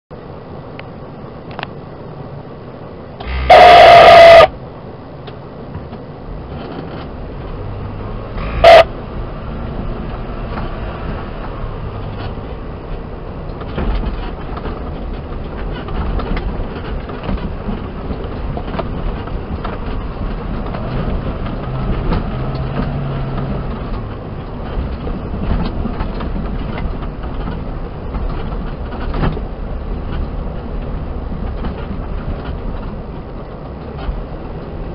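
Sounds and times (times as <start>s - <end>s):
vehicle engine running low: 0.2s - 34.9s
loud pitched horn blast: 3.2s - 4.5s, 8.3s - 8.9s
rattles and knocks of bumpy ride: 3.2s - 34.9s.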